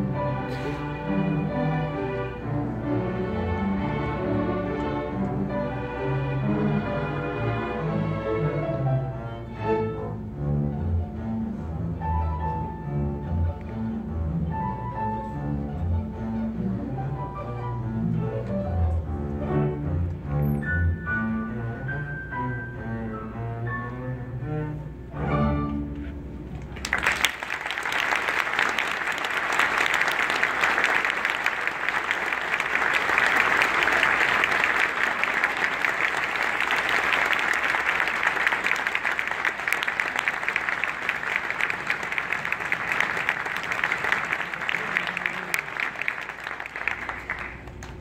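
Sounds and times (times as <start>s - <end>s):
double bass and string orchestra: 0.0s - 48.0s
audience applauding: 26.6s - 48.0s.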